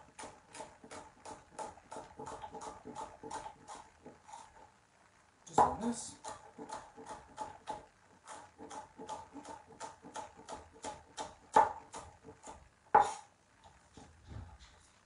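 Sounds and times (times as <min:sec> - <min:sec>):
knife chopping on board: 0:00.1 - 0:04.2, 0:05.6 - 0:13.2.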